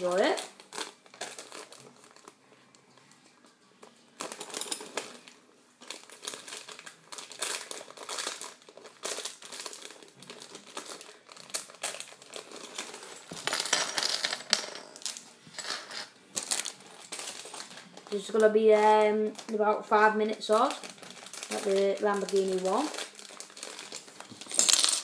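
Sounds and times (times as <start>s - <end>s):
packaging crinkling: 0.0s - 2.4s, 4.2s - 13.6s, 16.4s - 24.8s
plastic pieces clicking and rattling: 20.5s - 25.0s.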